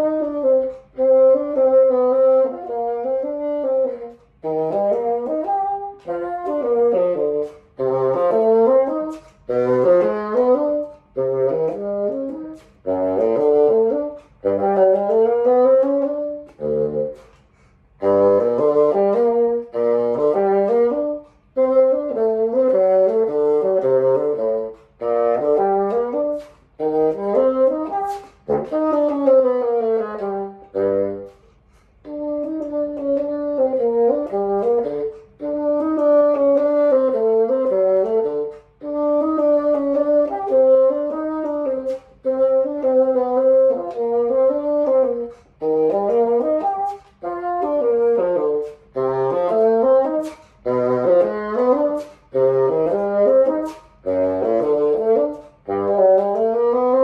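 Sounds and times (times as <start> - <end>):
solo bassoon playing: 0.0 - 57.0.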